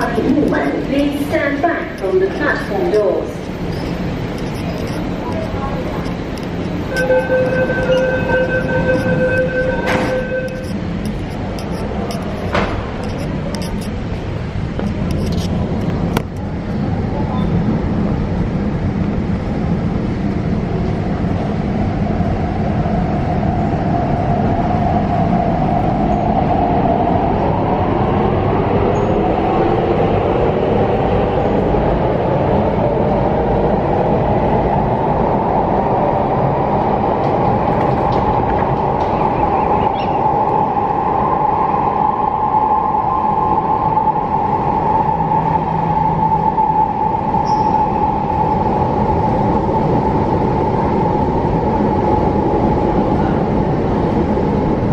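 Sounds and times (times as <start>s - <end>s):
wheels rumbling on rail: 0.0s - 54.9s
train motor whine: 6.3s - 11.5s.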